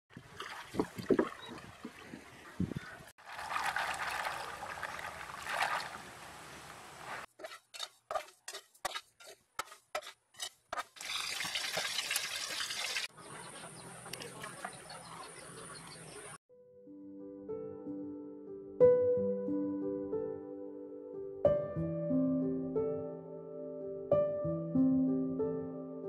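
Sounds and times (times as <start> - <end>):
water sloshing and trickling: 0.1 - 7.3, 11.0 - 13.1
rice stirred in a metal wok: 7.4 - 10.9.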